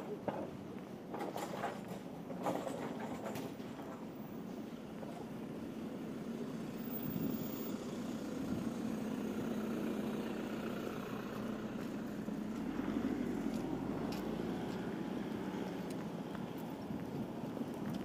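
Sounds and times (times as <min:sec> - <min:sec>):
traffic rumble: 0:00.0 - 0:18.0
van driving past: 0:05.6 - 0:16.3.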